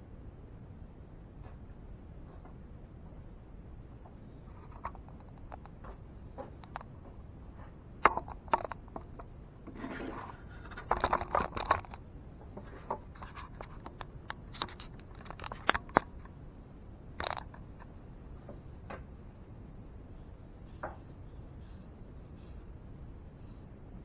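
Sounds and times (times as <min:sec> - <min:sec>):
handling clicks and knocks: 0:04.6 - 0:16.4, 0:17.2 - 0:19.1.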